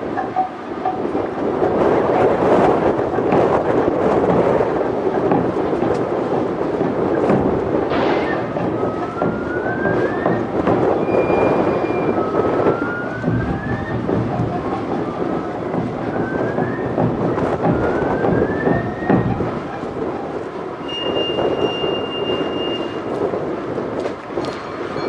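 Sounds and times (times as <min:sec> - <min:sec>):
dense drumming: 0:01.5 - 0:21.8
bamboo flutes playing: 0:08.4 - 0:23.1.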